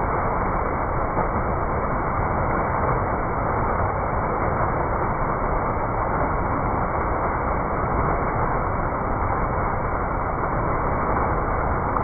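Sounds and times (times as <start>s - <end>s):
fountain water splashing: 0.0s - 12.0s.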